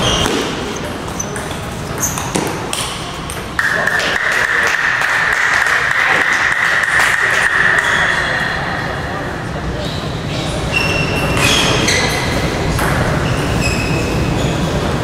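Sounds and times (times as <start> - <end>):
table tennis balls clicking: 0.0 - 7.9.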